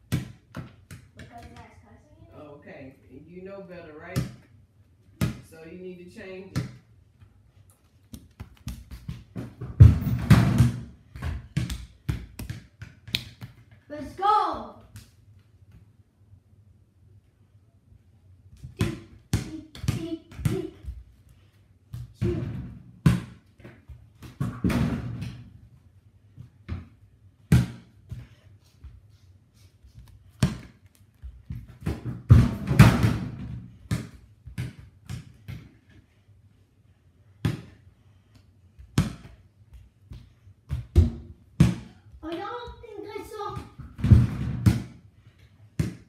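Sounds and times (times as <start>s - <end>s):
ball bouncing on hard floor: 0.0s - 1.7s, 5.2s - 5.5s, 8.0s - 13.8s, 18.6s - 21.1s, 21.9s - 25.5s, 30.0s - 36.0s, 37.4s - 45.0s, 45.8s - 46.0s
child running and jumping: 7.9s - 10.2s.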